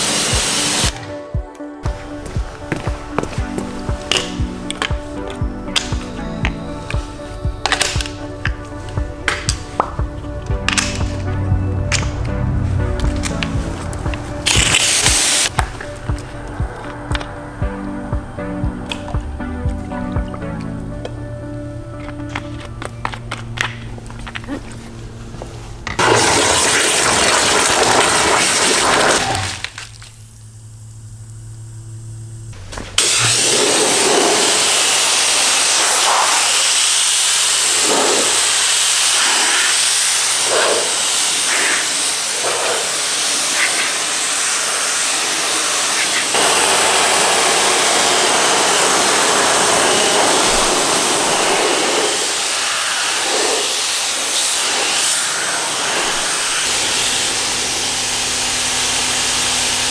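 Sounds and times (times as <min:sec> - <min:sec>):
pressure washer spraying: 0:00.0 - 0:01.2, 0:01.8 - 0:21.3, 0:25.9 - 0:30.2, 0:32.8 - 0:59.9
low steady hum: 0:01.9 - 0:26.0, 0:29.5 - 0:33.1.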